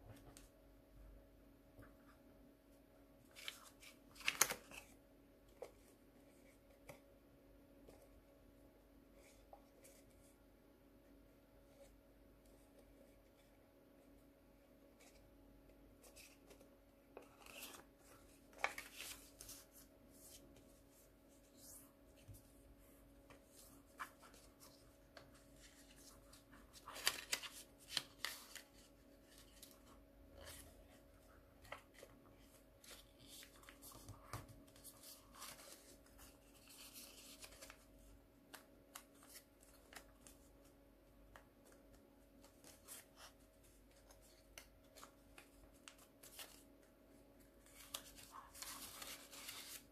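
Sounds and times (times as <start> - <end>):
paper rustling and crinkling: 3.2 - 7.0, 16.0 - 40.7, 41.3 - 46.8, 47.4 - 49.9.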